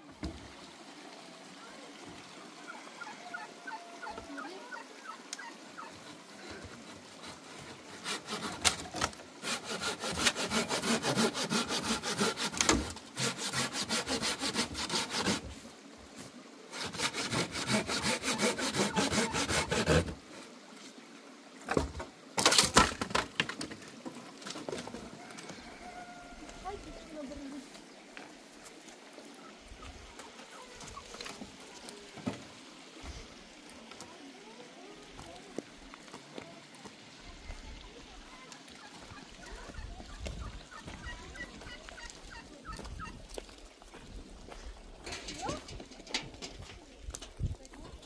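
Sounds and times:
rhythmic rasping strokes: 0:09.4 - 0:15.4, 0:16.7 - 0:20.2.

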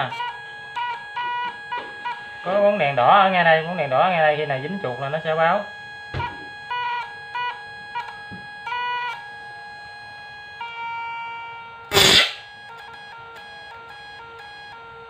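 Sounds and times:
electric machine whining: 0:00.0 - 0:15.0
high-voltage spark crackle: 0:11.9 - 0:12.4.

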